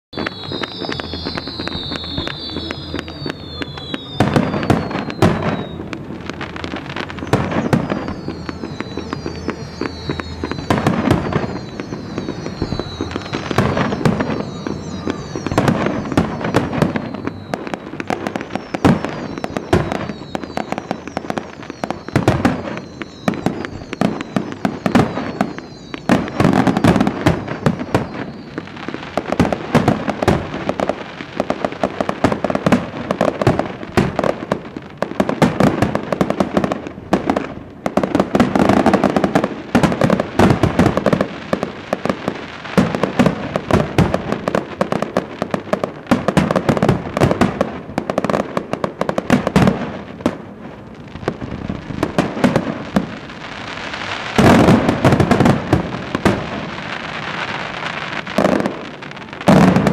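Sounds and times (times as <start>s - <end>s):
falling firework whistles: 0.1s - 59.9s
fireworks bangs and crackles: 0.1s - 59.9s.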